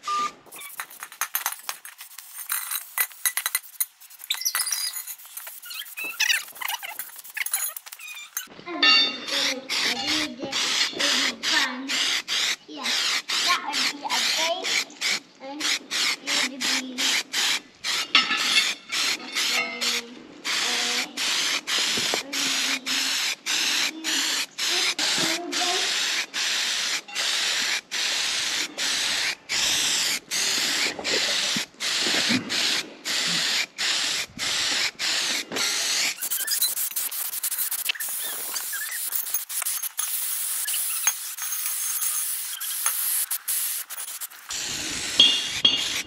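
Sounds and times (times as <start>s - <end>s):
spray paint hissing on steel: 0.4s - 46.0s.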